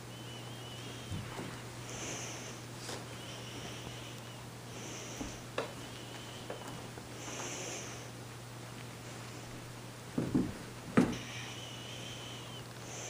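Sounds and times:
breathy puffs: 0:00.0 - 0:08.2, 0:11.1 - 0:13.0
steady low hum: 0:00.0 - 0:13.0
cats scuffling on a rug: 0:01.0 - 0:03.8, 0:04.9 - 0:08.0.

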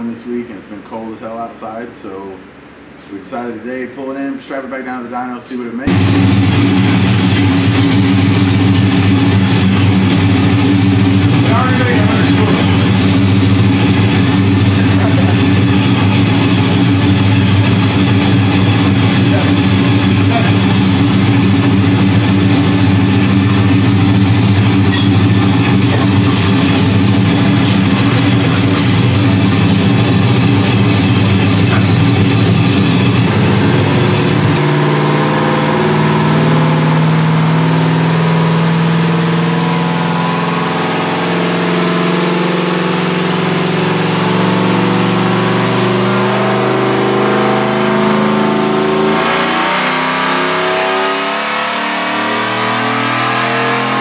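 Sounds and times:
engine running on dyno: 0:05.9 - 0:54.0.

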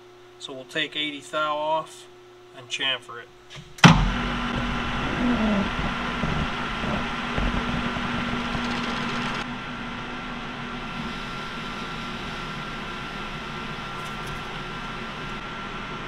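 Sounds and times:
lathe humming: 0:03.8 - 0:16.0.

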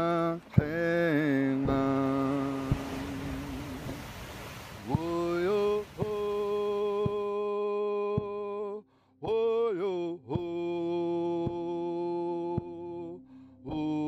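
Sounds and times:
drum struck steadily: 0:01.6 - 0:04.0.

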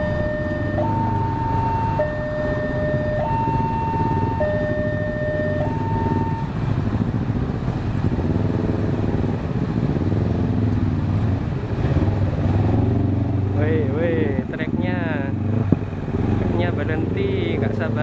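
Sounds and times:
two-tone electronic warning tone: 0:00.0 - 0:06.6
motorcycles revving: 0:00.0 - 0:18.0
truck driving: 0:00.0 - 0:18.0.

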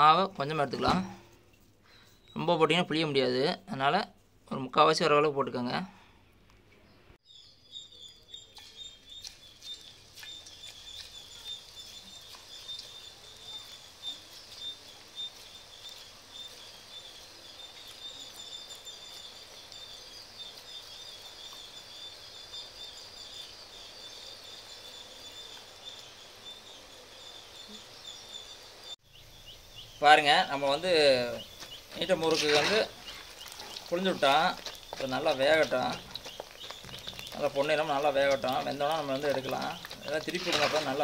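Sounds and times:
hot oil sizzling and crackling: 0:08.8 - 0:26.3, 0:28.8 - 0:41.0.

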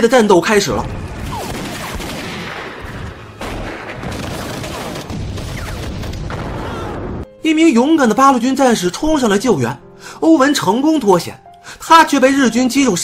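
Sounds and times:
heavy gunfire: 0:00.8 - 0:07.2.

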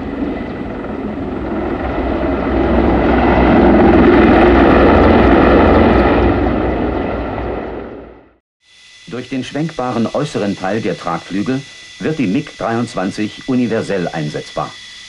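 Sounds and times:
helicopter flying low past: 0:00.0 - 0:15.0.

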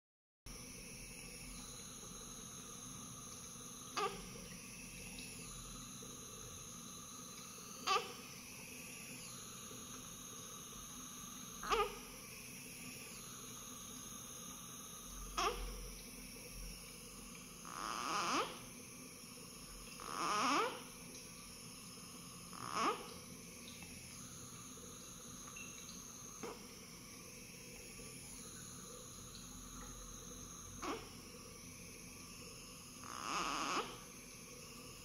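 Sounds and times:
faint room hum: 0:00.5 - 0:35.0
baby whimpering: 0:11.6 - 0:12.0, 0:15.4 - 0:15.7.

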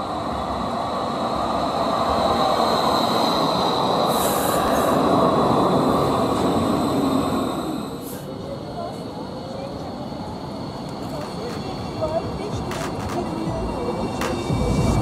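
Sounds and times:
tram passing: 0:00.0 - 0:15.0
high whine: 0:12.9 - 0:15.0.

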